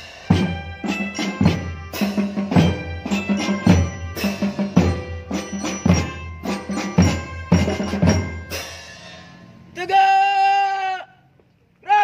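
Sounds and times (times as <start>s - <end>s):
melodicas playing a tune: 0.0s - 9.8s
bell lyre notes: 0.1s - 9.7s
snare drum beats: 0.2s - 8.6s.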